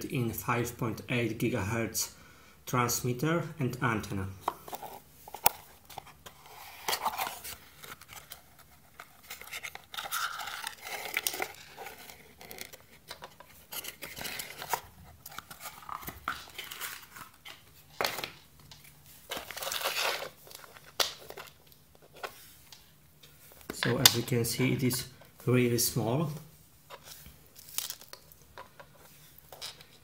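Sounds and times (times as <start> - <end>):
cardboard and packaging rustling: 4.4 - 25.4.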